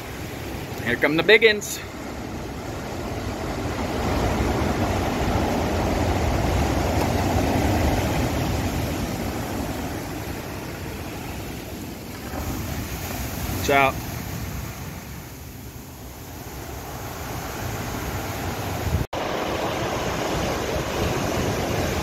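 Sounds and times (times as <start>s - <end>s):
storm waves breaking: 0.0s - 22.0s.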